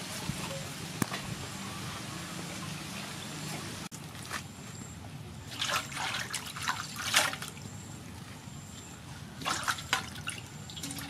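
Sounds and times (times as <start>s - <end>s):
water trickling and dripping: 9.4s - 11.0s.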